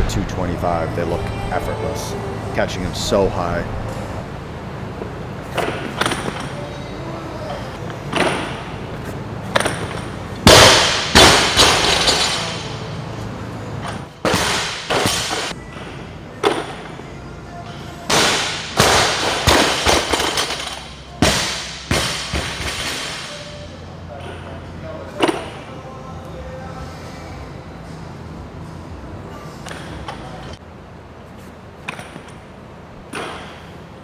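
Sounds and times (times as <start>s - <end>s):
barbells dropping with thuds and clanks: 9.5s - 12.6s, 18.1s - 23.4s.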